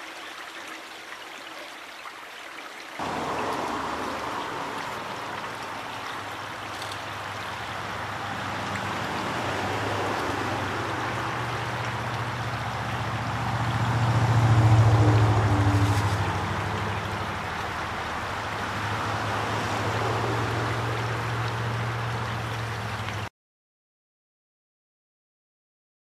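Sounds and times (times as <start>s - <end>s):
river water rushing: 0.0s - 23.3s
low engine hum: 3.0s - 23.3s.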